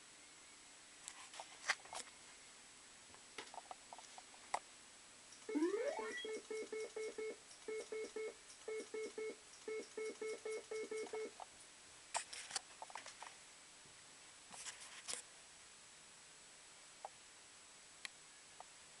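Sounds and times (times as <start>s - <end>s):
fruit machine rapid beeps: 5.5s - 11.3s.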